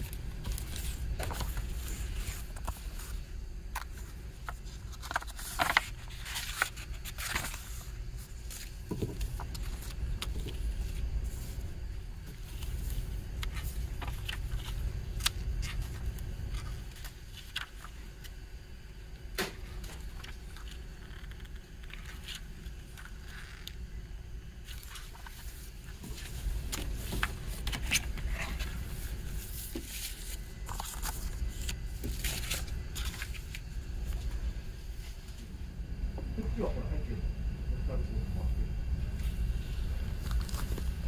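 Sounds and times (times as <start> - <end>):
paper rustling: 0.0 - 18.3, 19.7 - 23.8, 24.6 - 34.4, 39.2 - 41.0
low background rumble: 0.0 - 41.0.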